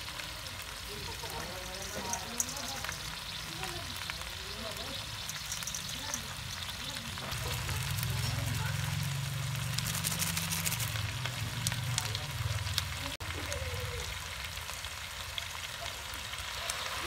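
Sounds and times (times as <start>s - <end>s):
sizzling with crackling pops: 0.0s - 17.0s.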